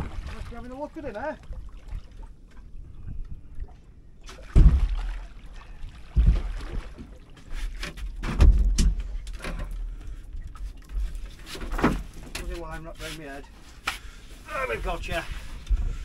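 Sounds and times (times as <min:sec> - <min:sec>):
heavy thumps on a boat: 0:04.3 - 0:05.2, 0:06.0 - 0:07.2, 0:07.9 - 0:09.8.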